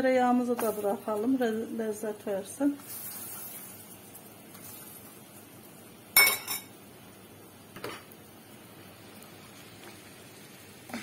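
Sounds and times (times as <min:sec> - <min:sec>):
flour sizzling in oil: 0:00.2 - 0:11.0
kitchenware clinking: 0:06.2 - 0:06.7.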